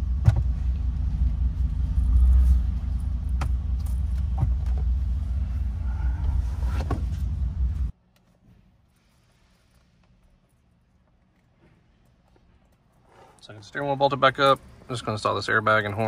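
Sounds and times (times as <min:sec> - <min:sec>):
steady low rumble: 0:00.0 - 0:08.0.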